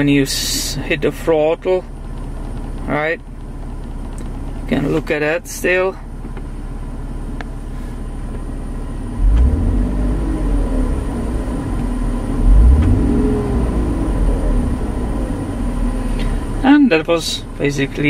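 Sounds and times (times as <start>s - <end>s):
car engine idling and revving: 0.0s - 18.0s.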